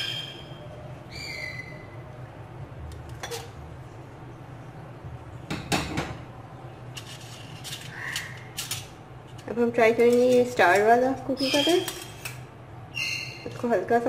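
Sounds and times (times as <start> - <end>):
metal kitchenware clinking: 3.1 - 3.6, 7.0 - 12.4.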